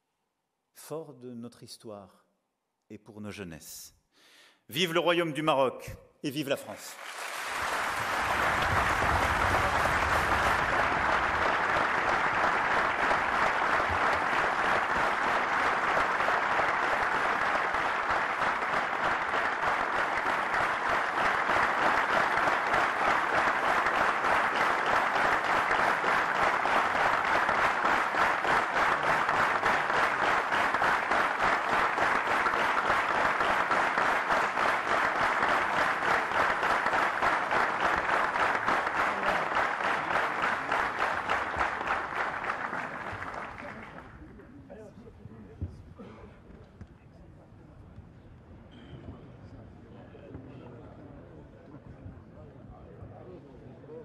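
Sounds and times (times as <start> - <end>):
large audience applauding: 6.6 - 44.4.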